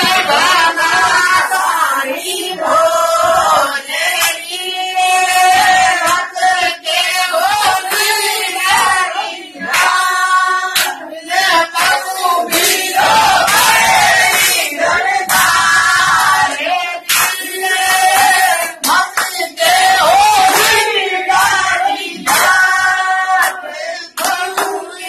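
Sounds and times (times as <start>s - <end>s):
voices singing together: 0.0s - 25.0s
sharp claps: 4.1s - 4.6s, 6.0s - 9.1s, 9.7s - 10.1s, 10.7s - 11.0s, 11.7s - 25.0s.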